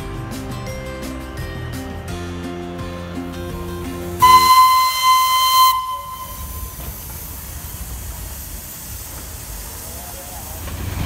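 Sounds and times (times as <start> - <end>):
steam hiss: 3.5 - 11.0
steam locomotive whistle: 4.2 - 7.4.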